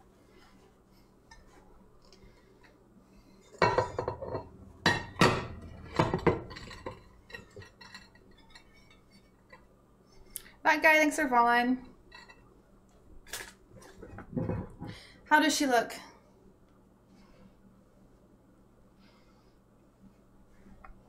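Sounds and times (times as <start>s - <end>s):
pans and plates clattering: 3.5s - 9.0s, 13.3s - 15.0s.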